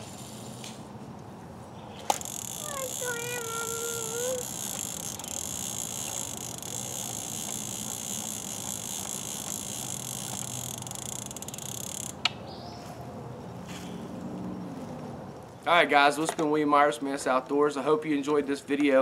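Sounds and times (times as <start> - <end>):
insects chirring: 2.0 - 12.3.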